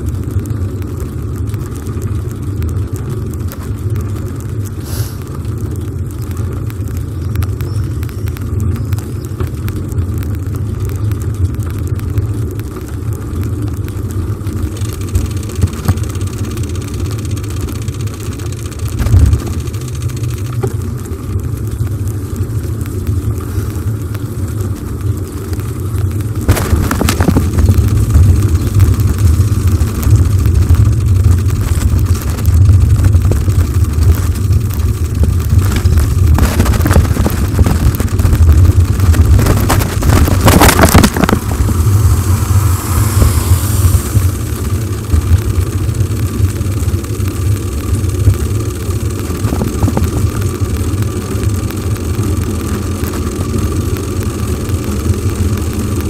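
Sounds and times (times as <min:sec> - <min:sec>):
tyre noise on road: 0:00.0 - 0:56.0
wind buffeting microphone: 0:25.6 - 0:46.7
rattling burst: 0:26.4 - 0:50.3
faint falling hiss: 0:41.4 - 0:45.2.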